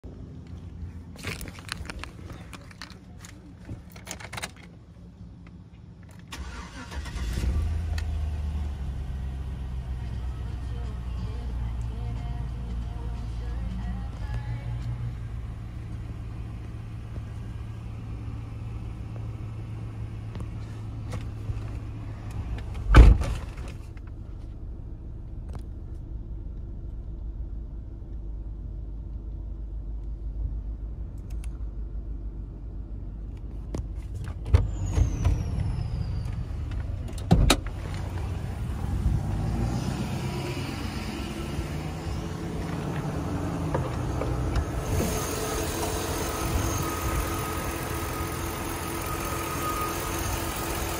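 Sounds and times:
engine idling: 42.0 - 50.9.

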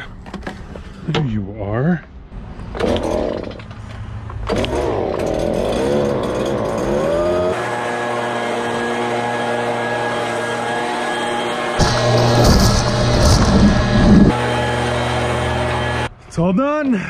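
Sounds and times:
leaf blower engine running: 4.5 - 16.1.

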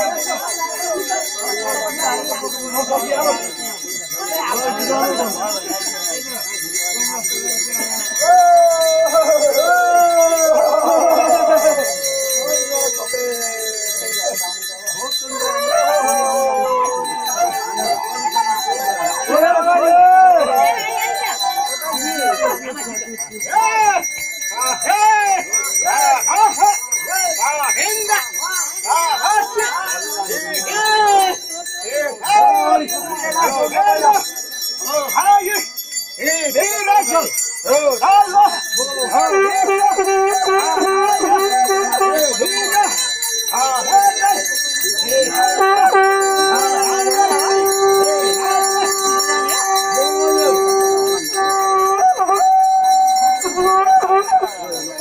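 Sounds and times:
hand bell ringing: 0.0 - 55.0
voices: 0.0 - 55.0
rising and falling vocal cries: 8.2 - 13.4, 45.4 - 53.4.

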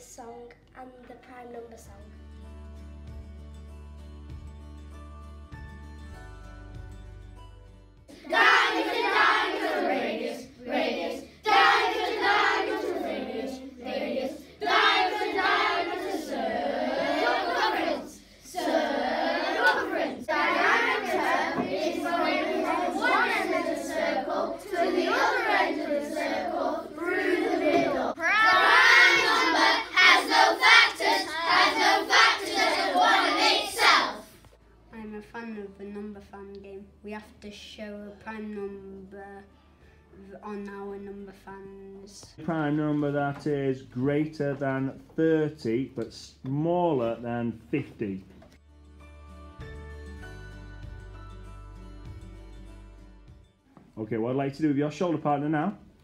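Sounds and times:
faint background music: 0.0 - 56.0
children singing in unison: 8.1 - 34.3
group chanting: 8.1 - 34.3.

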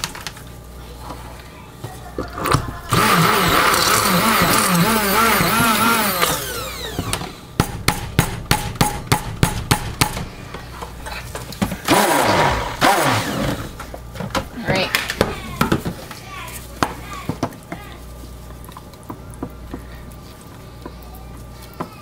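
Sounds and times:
stick blender motor whine: 2.5 - 7.5, 11.8 - 13.8.

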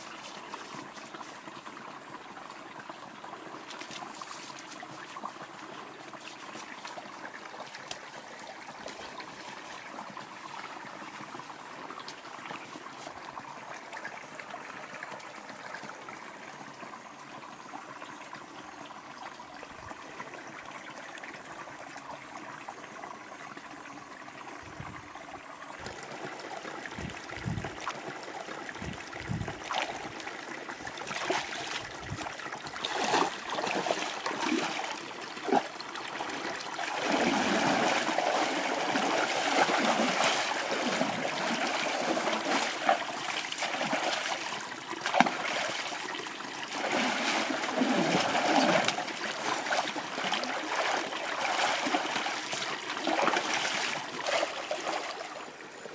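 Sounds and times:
water splashing: 28.7 - 55.3.

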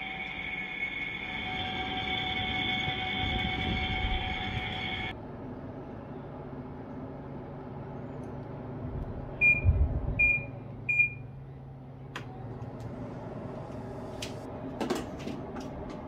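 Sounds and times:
air conditioner beeping: 0.0 - 5.1, 9.4 - 11.4
air conditioner fan hum: 0.0 - 16.0.

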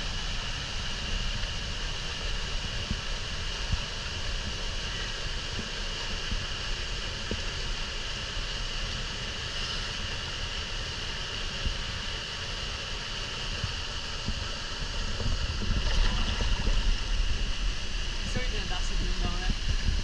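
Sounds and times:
wind buffeting microphone: 13.6 - 20.0.

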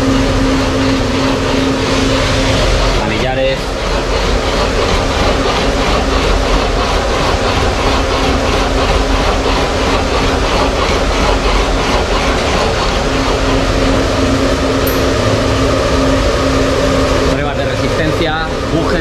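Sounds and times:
test machines humming and clattering: 0.0 - 19.0.

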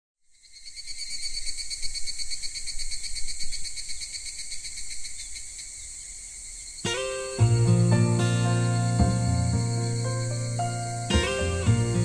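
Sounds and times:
crickets chirring: 0.2 - 12.0.

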